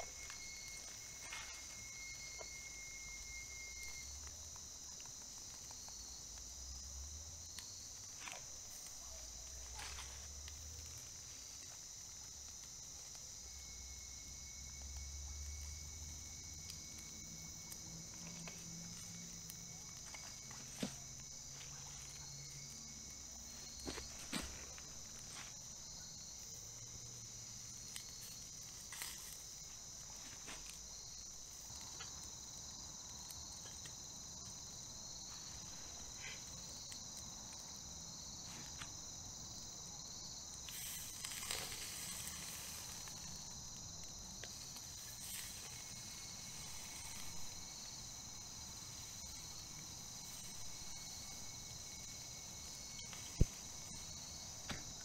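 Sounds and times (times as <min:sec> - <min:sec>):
insects trilling: 0:00.0 - 0:55.0
faint crackles and knocks: 0:18.0 - 0:25.8, 0:52.9 - 0:55.0.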